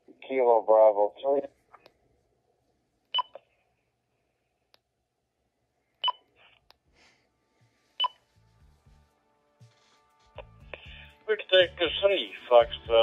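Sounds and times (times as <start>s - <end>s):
garbled digital radio audio: 10.4s - 13.0s.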